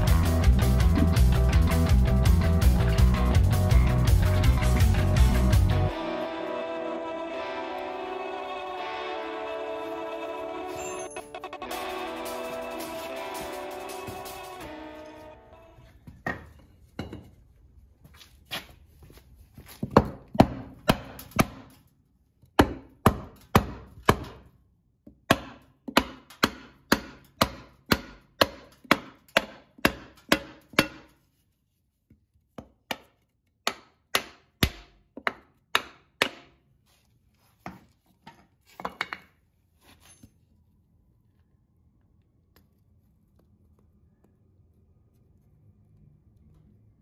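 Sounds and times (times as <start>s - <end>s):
hammer knocking on wooden block: 25.3s - 31.1s.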